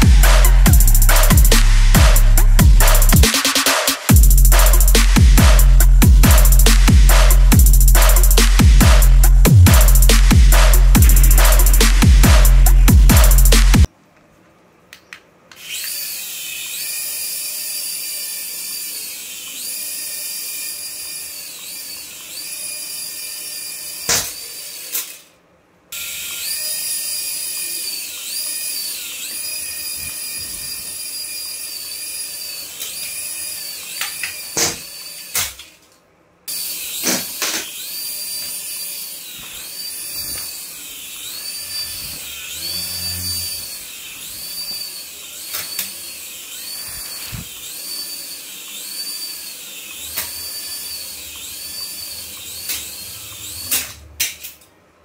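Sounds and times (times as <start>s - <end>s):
toy helicopter rotor whining: 15.5s - 25.3s, 25.9s - 35.5s, 36.5s - 54.1s.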